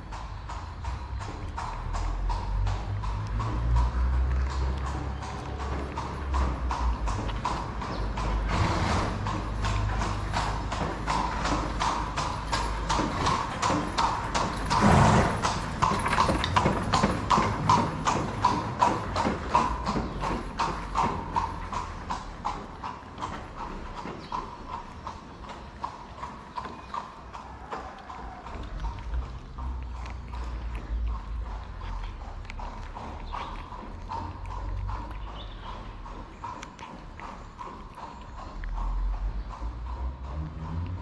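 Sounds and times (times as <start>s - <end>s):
cat chewing wet food: 27.5s - 39.2s.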